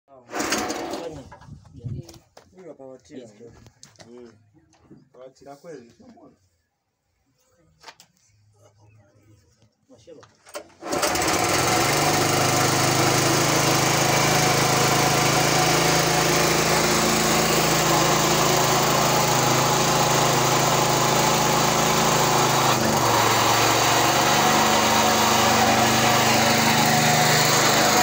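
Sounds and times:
small diesel engine running: 0.3 - 1.2, 10.8 - 28.0.

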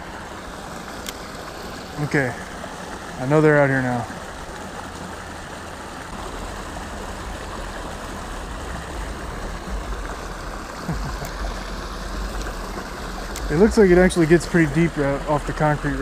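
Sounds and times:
creek water rushing over ledge: 0.0 - 16.0
low rumble: 6.2 - 16.0.

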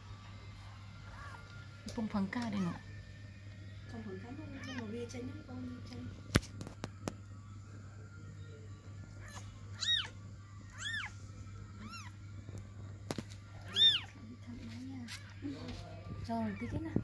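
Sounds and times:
kitten mewing: 4.6 - 4.8, 9.2 - 11.2, 11.8 - 12.2, 13.6 - 14.2.

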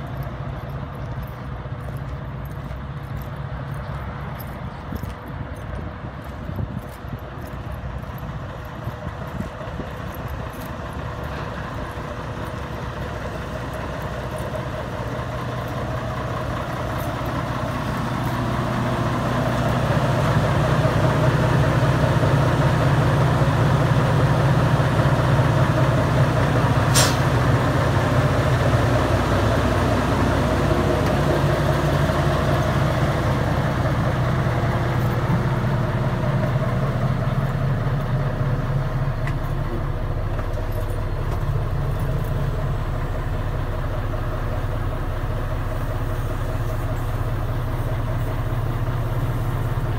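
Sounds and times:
diesel engine idling: 0.0 - 49.9
air hiss: 26.9 - 27.3.

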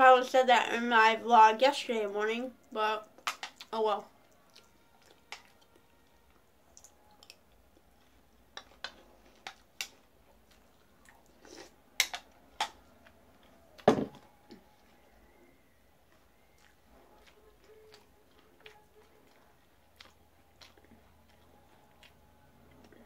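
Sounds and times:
crunchy cereal eaten: 16.4 - 23.0.

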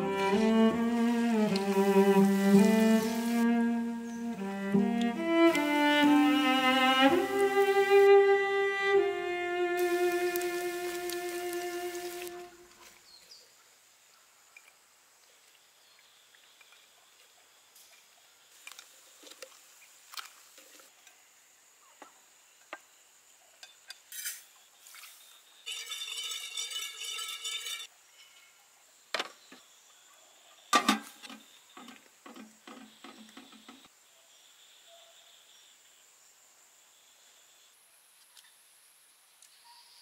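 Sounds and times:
dishes and pots clinking: 25.7 - 28.5.

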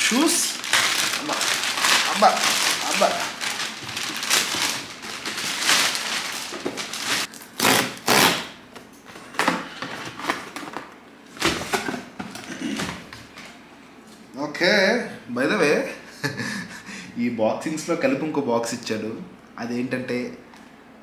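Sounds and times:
plastic mailer bag crinkling and tearing: 0.0 - 8.5
packing tape ripping: 0.0 - 8.6.

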